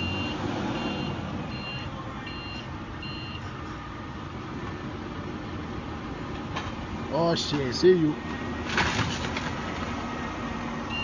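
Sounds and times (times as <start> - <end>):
reversing alarm beeping: 0.0 - 3.4.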